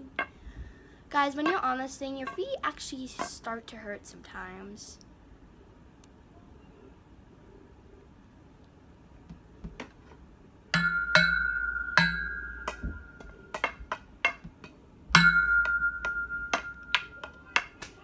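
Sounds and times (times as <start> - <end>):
metal pole ringing when struck: 10.8 - 14.5, 15.2 - 18.0.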